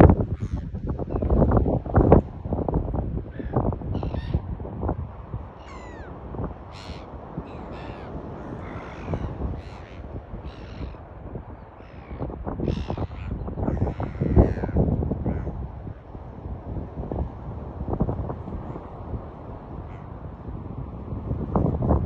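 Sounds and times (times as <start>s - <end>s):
gulls calling: 3.4s - 4.4s, 5.6s - 15.6s.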